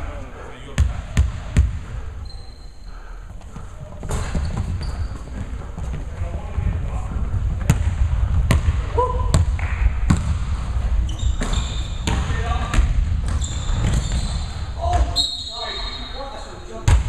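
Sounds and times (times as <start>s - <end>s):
sneaker squeak: 2.2s - 2.9s, 4.0s - 5.6s, 11.0s - 16.4s.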